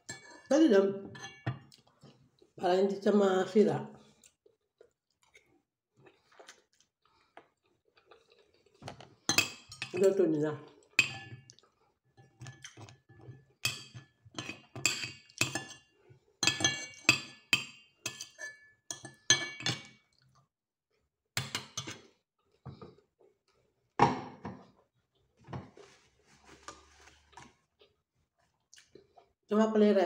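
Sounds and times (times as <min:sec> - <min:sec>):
cutlery clinking on a plate: 0:11.0 - 0:11.5, 0:12.2 - 0:20.0.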